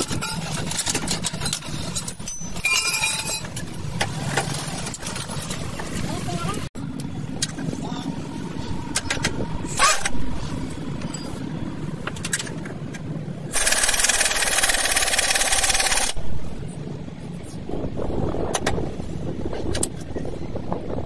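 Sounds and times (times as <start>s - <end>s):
pneumatic impact wrench hammering: 13.5s - 16.2s.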